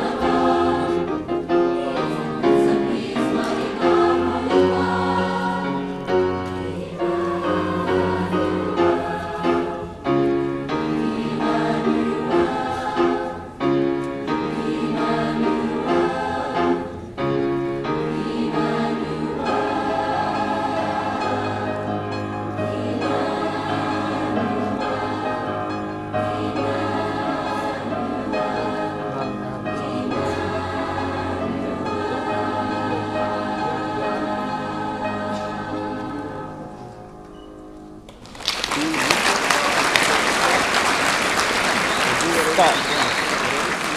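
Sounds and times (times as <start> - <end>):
choir singing chords: 0.0 - 38.1.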